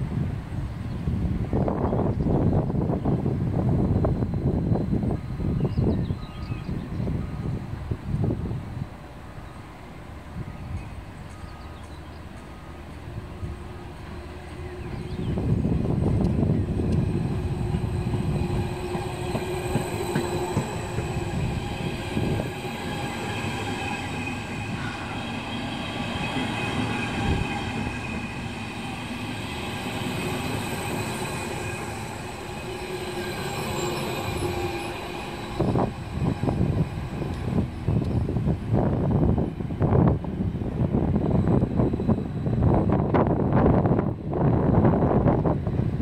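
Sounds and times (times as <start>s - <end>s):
wheels rumbling on rails: 0.0s - 46.0s
electric train drive whining: 12.2s - 46.0s.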